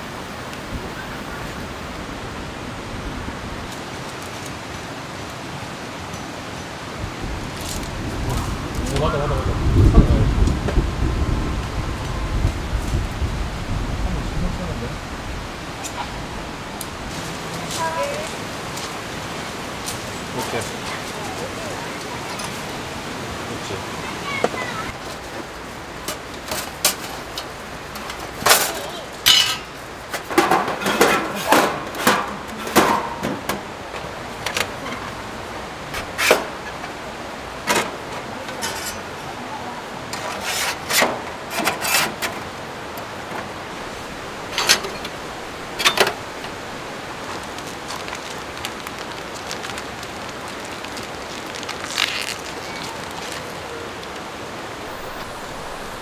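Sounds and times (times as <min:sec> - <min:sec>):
running water: 0:00.0 - 0:56.0
metal stove panels clanking: 0:28.5 - 0:29.7, 0:44.4 - 0:46.2.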